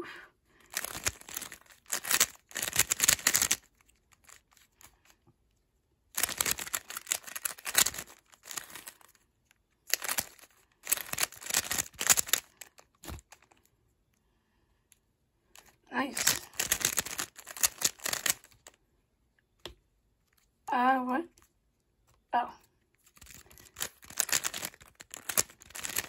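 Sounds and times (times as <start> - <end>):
speed cube plastic clicking: 0.7 - 5.0, 6.1 - 9.2, 9.9 - 13.6, 15.6 - 18.8, 23.1 - 26.0.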